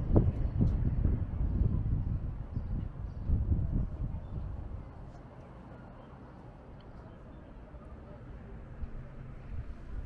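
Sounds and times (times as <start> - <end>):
wind gusting over microphone: 0.0 - 5.1, 8.6 - 10.0.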